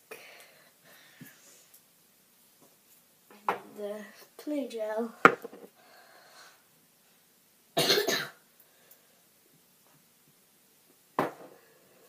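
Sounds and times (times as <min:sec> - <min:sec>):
person coughing: 0:07.8 - 0:08.4.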